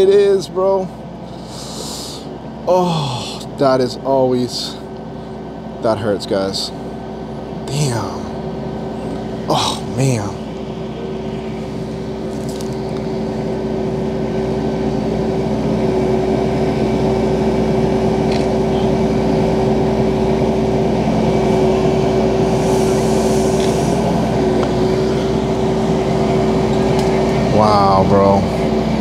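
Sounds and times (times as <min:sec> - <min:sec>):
tow truck engine and winch humming: 0:00.0 - 0:29.0.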